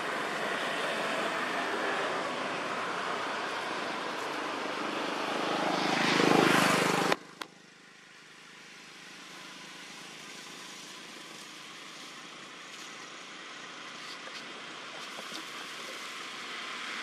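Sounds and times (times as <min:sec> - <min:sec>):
engine drone: 0:00.0 - 0:17.0
steady background hiss: 0:07.2 - 0:17.0.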